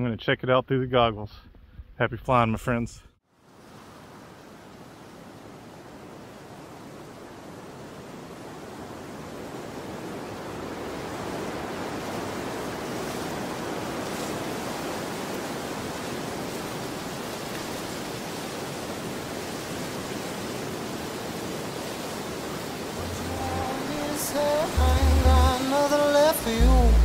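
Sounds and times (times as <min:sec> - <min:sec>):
steady rushing noise: 0:20.4 - 0:27.0.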